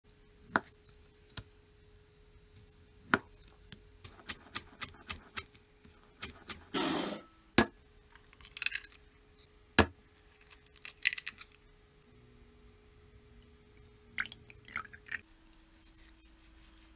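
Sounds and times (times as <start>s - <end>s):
faint steady hum: 0.1s - 16.9s
knife scraping across board: 6.2s - 7.3s.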